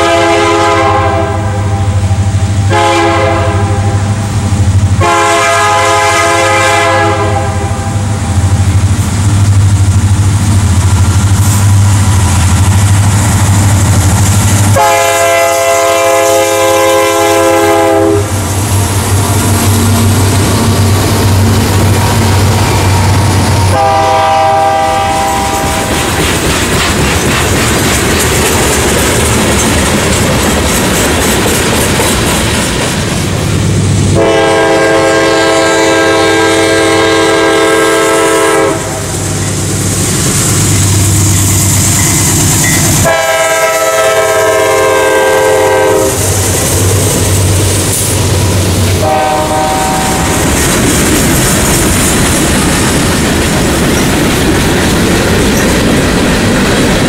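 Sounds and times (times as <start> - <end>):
locomotive air horn blasts: 0.0 - 4.3, 5.0 - 8.3, 14.7 - 20.2, 23.6 - 25.9, 34.1 - 39.2, 43.0 - 46.3, 49.0 - 50.4
train wheels rumbling and clattering: 0.0 - 57.0.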